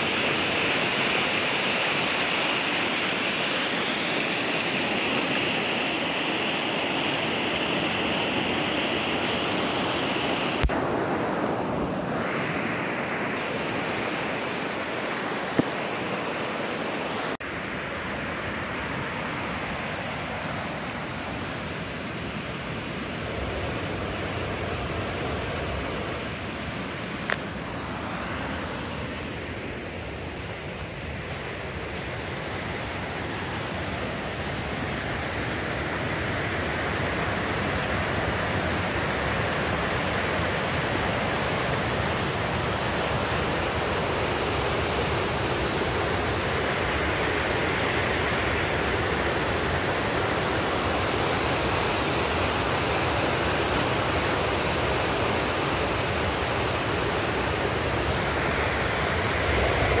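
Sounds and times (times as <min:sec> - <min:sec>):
waterfall rushing water: 0:00.0 - 1:00.0.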